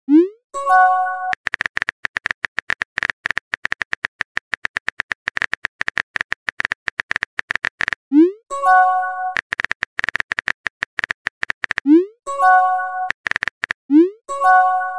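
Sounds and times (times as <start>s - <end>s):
rapid keyboard tap clicks: 1.3s - 8.0s, 9.3s - 11.9s, 13.1s - 13.9s
message chime: 8.5s - 9.4s, 12.3s - 13.1s, 14.3s - 14.9s.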